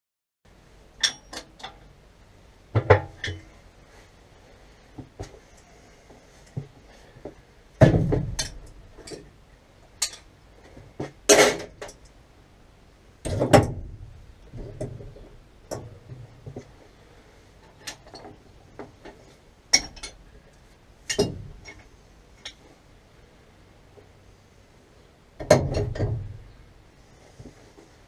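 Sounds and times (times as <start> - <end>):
metal parts clinking and knocking: 19.7 - 20.2.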